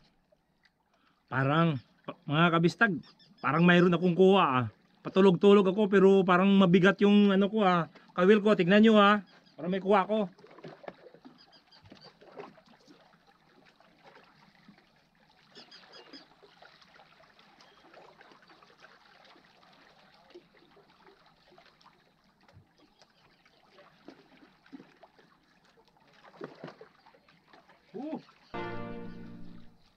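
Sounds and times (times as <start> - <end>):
water lapping on rocks: 7.4 - 28.6.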